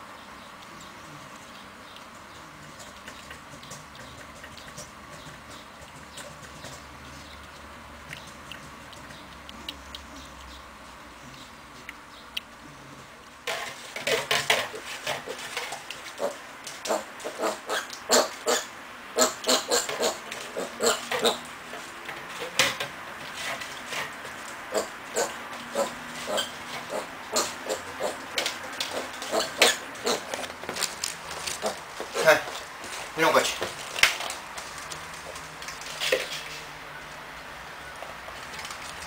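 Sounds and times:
piglet grunting: 14.0s - 22.6s, 24.1s - 32.6s.

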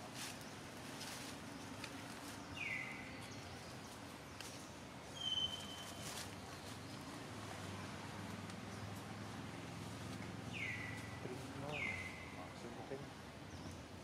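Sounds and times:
high whistle-like animal calls: 5.2s - 6.0s.

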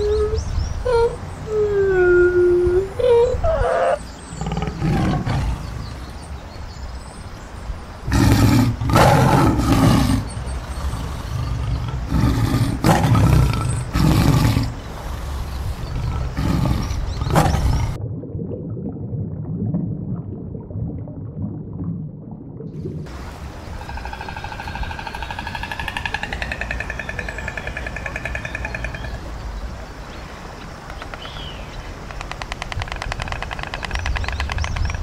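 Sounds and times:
tiger roaring and growling: 0.9s - 5.9s, 8.1s - 18.0s, 23.8s - 29.3s.

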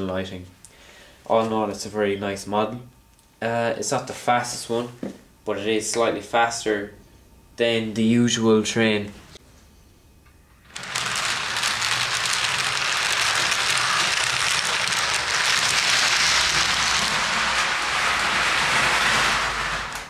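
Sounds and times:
low motor hum: 10.7s - 20.0s
model train wheels rattling on rails: 10.7s - 20.0s.

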